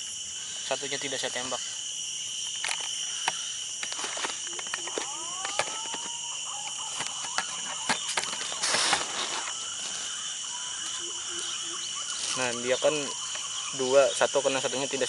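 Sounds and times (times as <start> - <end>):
forest insects droning: 0.0 - 15.0
rustles: 2.4 - 13.7
rising whistled calls: 4.8 - 14.2.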